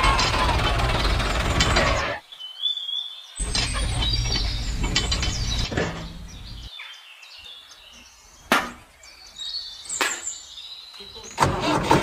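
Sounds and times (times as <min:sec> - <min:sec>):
faint bird chirps: 0:02.2 - 0:11.4.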